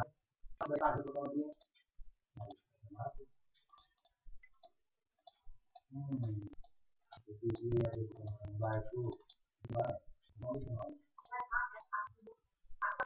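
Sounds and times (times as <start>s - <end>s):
mouse buttons clicking: 3.6s - 9.8s
low murmur: 5.9s - 6.5s, 7.3s - 10.9s.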